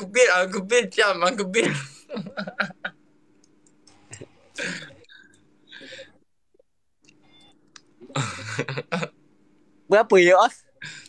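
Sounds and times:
man clearing throat: 1.6 - 2.0, 4.6 - 5.0
man breathing noisily: 4.6 - 6.2.

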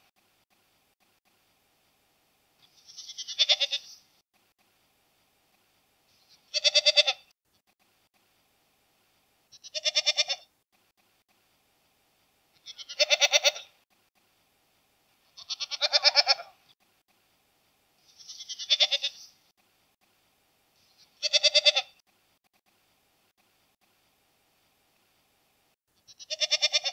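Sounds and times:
goat bleating: 2.6 - 4.0, 6.4 - 7.3, 9.5 - 10.5, 12.6 - 13.8, 15.3 - 16.6, 18.1 - 19.3, 21.0 - 22.0, 26.1 - 26.9.

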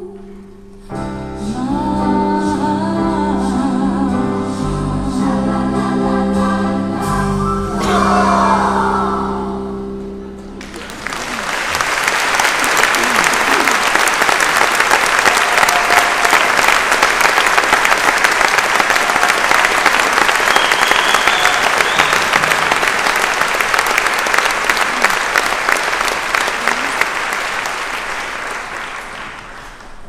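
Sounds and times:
audience applauding: 10.6 - 30.0.

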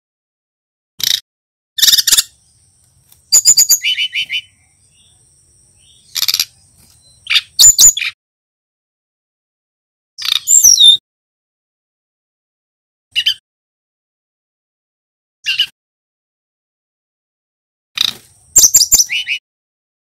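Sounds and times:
bird singing high chirps: 1.8 - 8.2, 10.2 - 11.0, 13.2 - 13.4, 15.4 - 15.7, 18.0 - 19.4.

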